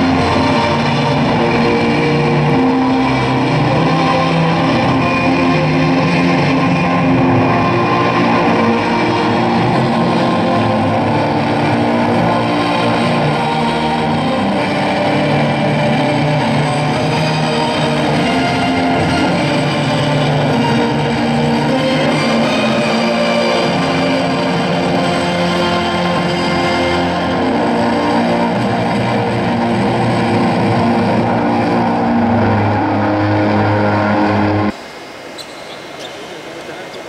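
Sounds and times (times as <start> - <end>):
guitar-led music: 0.0 - 34.7.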